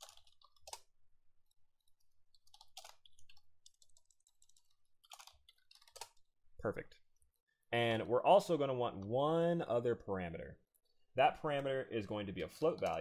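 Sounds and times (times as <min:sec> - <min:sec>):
faint keyboard typing: 0:00.0 - 0:06.3, 0:08.8 - 0:09.2, 0:11.5 - 0:13.0.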